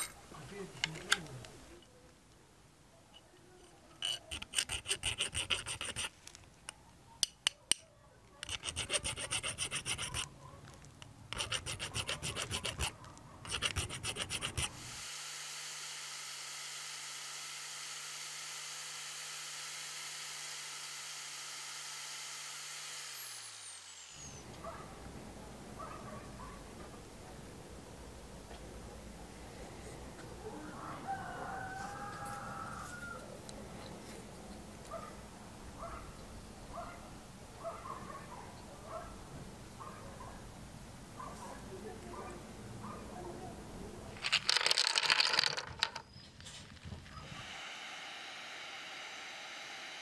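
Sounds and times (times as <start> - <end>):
file rasping on metal: 4.0 - 6.1, 8.4 - 10.3, 11.3 - 14.9
electric sanding disc spinning: 13.5 - 24.4, 47.2 - 50.0.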